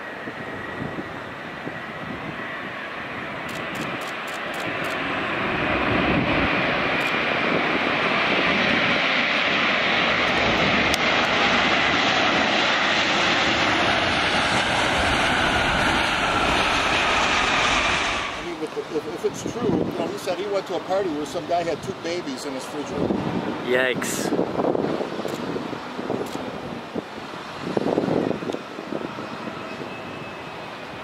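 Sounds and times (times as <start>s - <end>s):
jet engines roaring: 0.0s - 31.0s.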